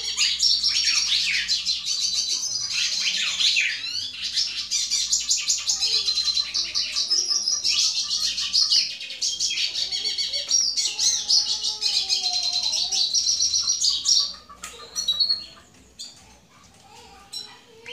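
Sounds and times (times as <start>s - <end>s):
siskin twittering song: 0.0s - 16.2s.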